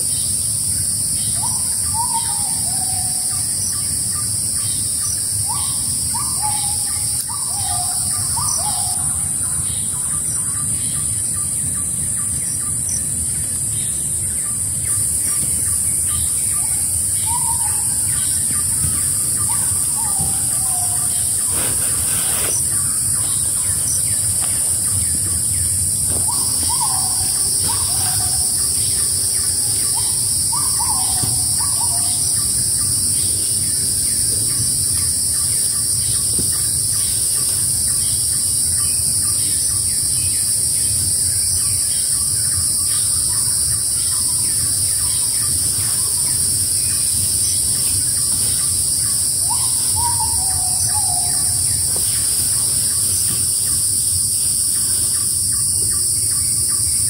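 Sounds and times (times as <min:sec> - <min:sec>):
lower insect drone: 0:00.0 - 0:57.0
high-pitched insect drone: 0:12.4 - 0:57.0
bird whistled calls: 0:16.5 - 0:32.4, 0:49.4 - 0:52.3.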